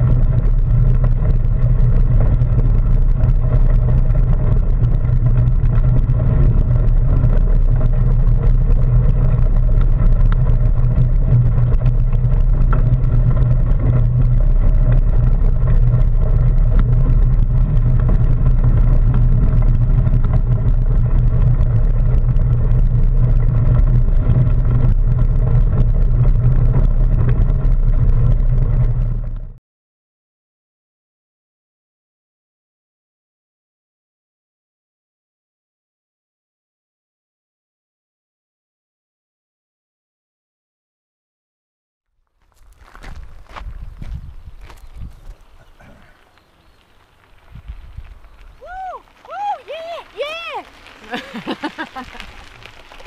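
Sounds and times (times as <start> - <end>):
bike tyres rolling on gravel: 0.0 - 29.6, 42.3 - 53.0
wind noise: 0.0 - 29.6, 42.5 - 53.0.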